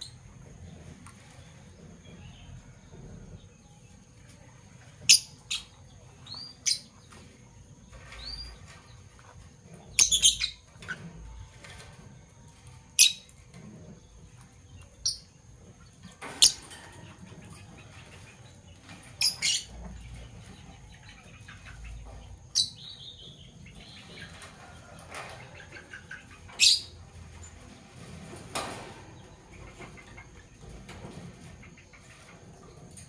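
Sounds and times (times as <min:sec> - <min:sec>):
lovebirds chirping: 0:05.0 - 0:09.1, 0:09.8 - 0:11.5, 0:13.0 - 0:24.5, 0:25.5 - 0:28.0.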